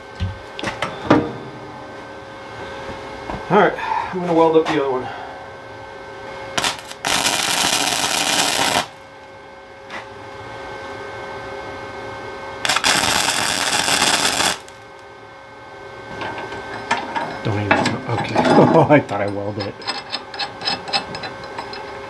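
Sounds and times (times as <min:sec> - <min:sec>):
welder arcing: 0:06.6 - 0:09.1, 0:12.6 - 0:15.1.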